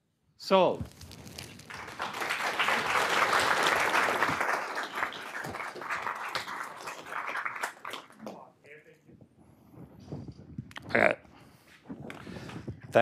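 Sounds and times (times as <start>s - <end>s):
audience applauding: 1.3s - 8.4s.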